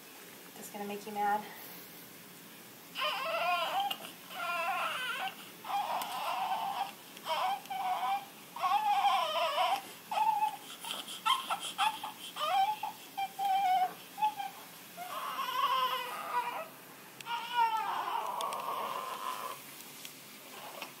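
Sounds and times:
newborn baby crying: 0:03.0 - 0:19.6.

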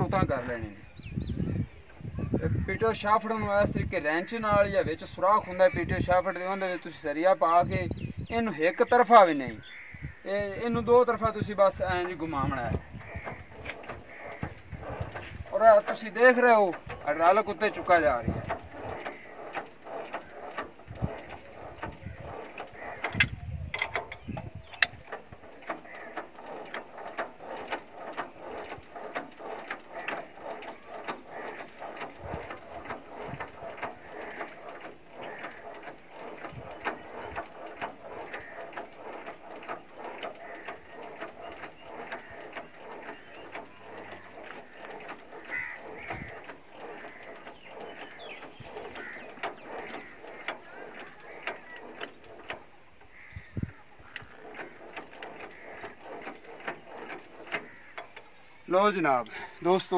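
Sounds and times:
metal clanks: 0:11.4 - 0:53.2, 0:54.1 - 0:59.9
metal clicking and clinking: 0:13.0 - 0:53.2.

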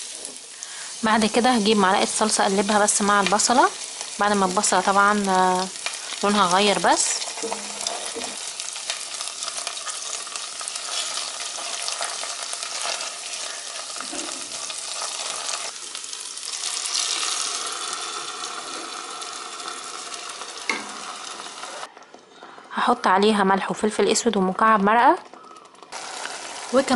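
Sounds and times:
onion sizzling in hot oil: 0:00.0 - 0:21.9, 0:25.9 - 0:26.9
wooden spoon stirring and scraping: 0:07.1 - 0:15.7.

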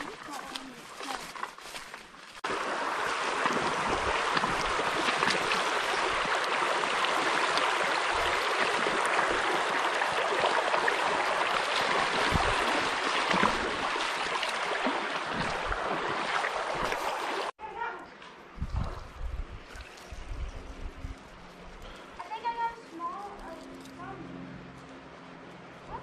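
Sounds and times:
creek water rushing over rocks: 0:00.0 - 0:17.5.

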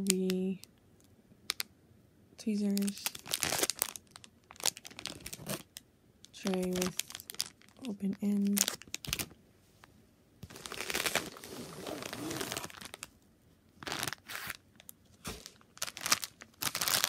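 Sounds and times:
plastic packaging crinkling: 0:02.7 - 0:09.4, 0:10.4 - 0:13.1, 0:13.8 - 0:17.0.

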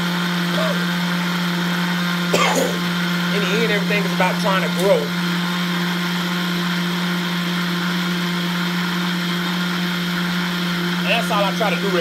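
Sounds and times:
blender motor hum: 0:00.0 - 0:12.0.

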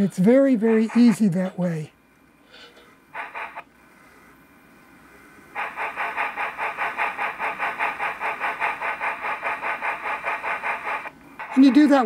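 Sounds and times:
model locomotive wheels spinning: 0:02.4 - 0:12.0.

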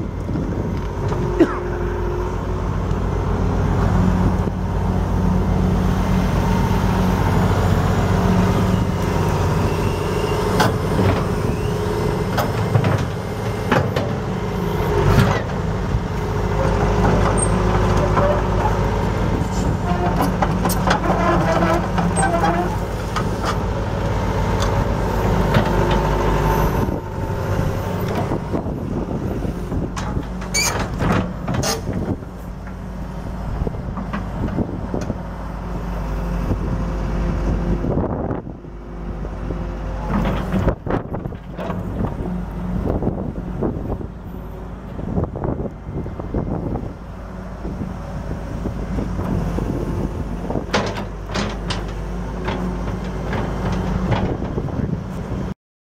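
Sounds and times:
diesel engine running: 0:00.0 - 0:55.5
hydraulic whine: 0:00.1 - 0:15.5, 0:17.1 - 0:32.5.

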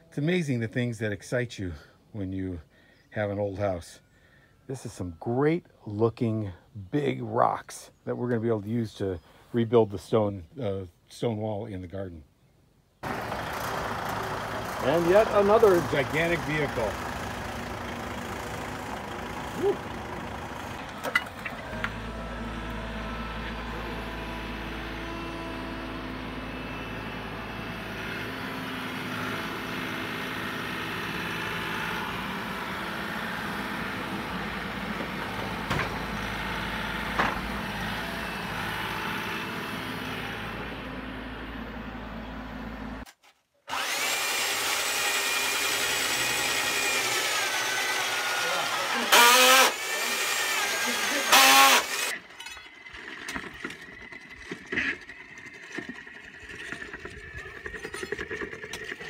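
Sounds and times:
diesel engines running: 0:13.0 - 0:43.0, 0:43.7 - 0:59.0
electric drill whining: 0:43.7 - 0:54.6.

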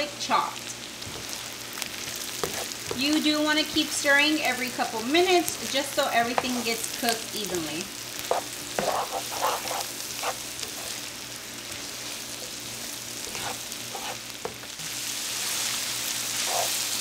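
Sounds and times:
food sizzling in a skillet: 0:00.0 - 0:17.0
spatula scraping a pan: 0:02.1 - 0:03.0, 0:07.5 - 0:11.1, 0:13.2 - 0:14.6, 0:15.3 - 0:17.0.

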